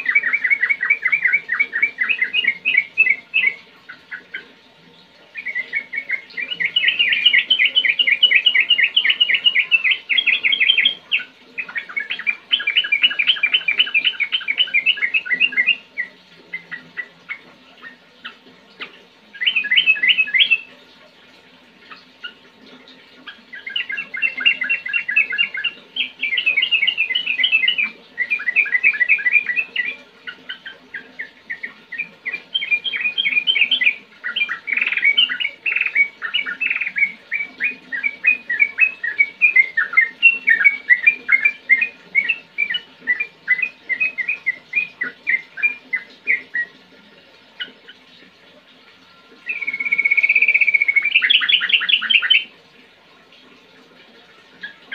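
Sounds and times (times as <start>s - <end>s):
bird singing chattering notes: 5.3s - 18.4s, 19.3s - 20.7s, 23.3s - 46.8s, 49.4s - 52.5s.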